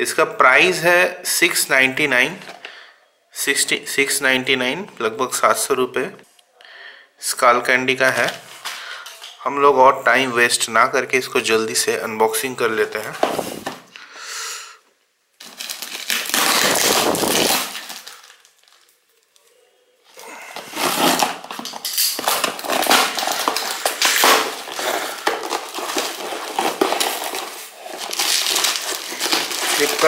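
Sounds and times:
plastic bag and tape crinkling: 0:15.4 - 0:30.0.

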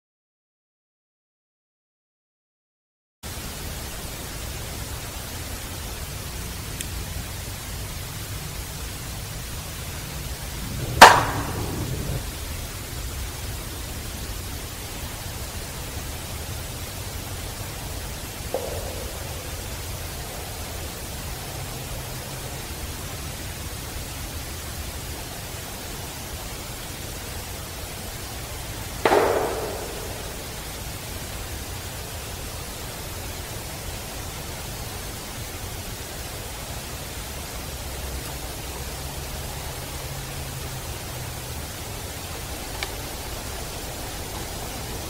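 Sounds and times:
steady forest hiss: 0:03.2 - 0:45.0
sharp ringing knock: 0:10.8 - 0:12.2, 0:18.5 - 0:19.9, 0:29.0 - 0:30.8.

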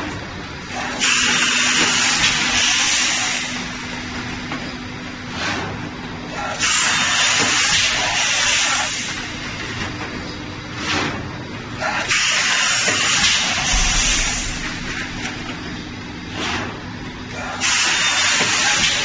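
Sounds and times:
low machine hum: 0:13.4 - 0:17.6
short puff of air: 0:13.6 - 0:15.4.

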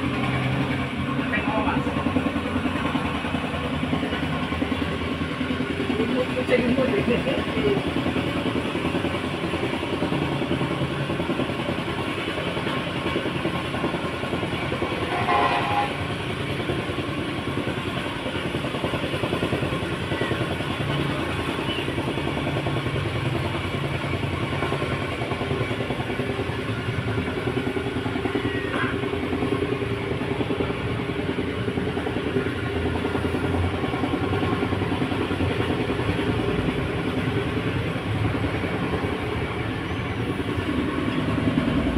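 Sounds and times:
mechanical rumble with rattling: 0:00.0 - 0:41.9.

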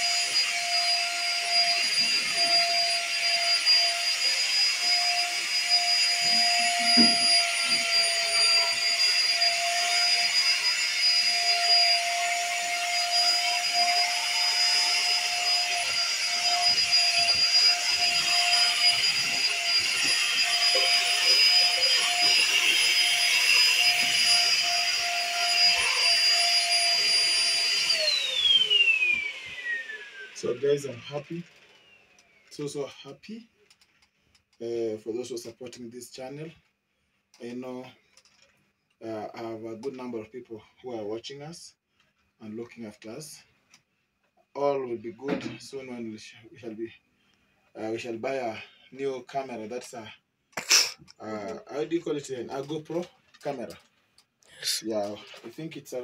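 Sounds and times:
vacuum cleaner running: 0:00.0 - 0:32.4, 0:54.6 - 0:55.0.

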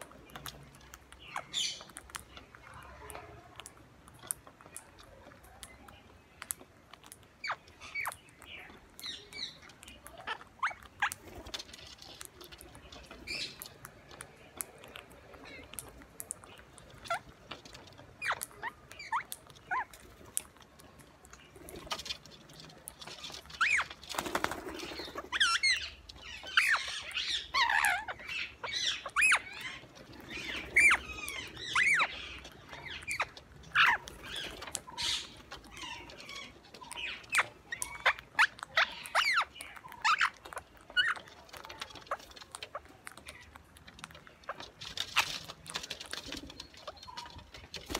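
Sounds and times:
birds cracking seeds and pecking: 0:00.0 - 0:47.9
parakeet calls: 0:01.2 - 0:03.5, 0:07.4 - 0:11.6, 0:12.6 - 0:20.5, 0:23.1 - 0:43.6.

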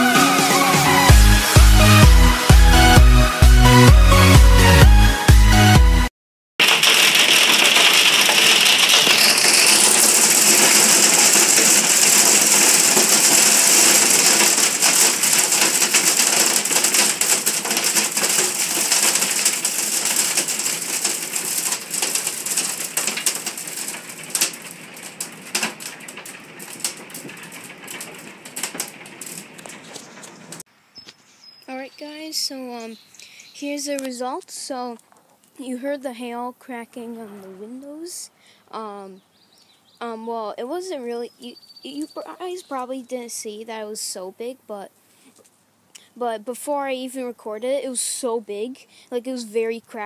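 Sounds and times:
hailstones cracking on glass: 0:06.6 - 0:30.6.

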